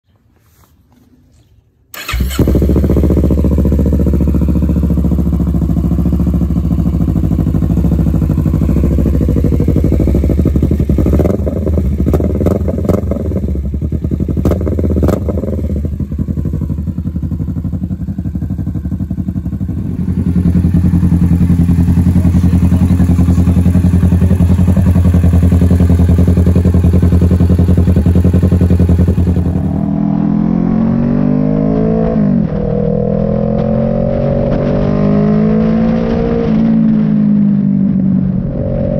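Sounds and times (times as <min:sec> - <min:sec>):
motorcycle engine idling: 0:01.9 - 0:29.8.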